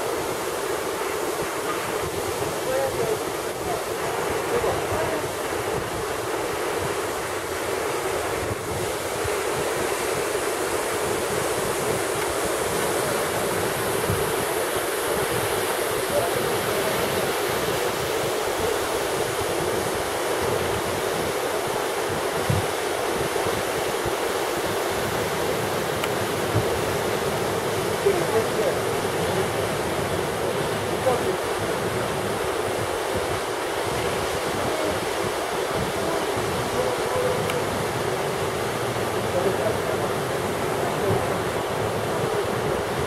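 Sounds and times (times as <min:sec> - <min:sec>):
waterfall rushing: 0:00.0 - 0:43.0
wind buffeting microphone: 0:00.0 - 0:43.0.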